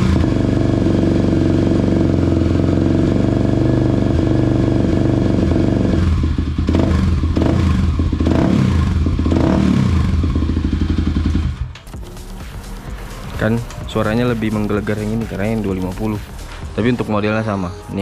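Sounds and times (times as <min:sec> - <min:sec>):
motorcycle engine idling and revving: 0:00.0 - 0:17.5.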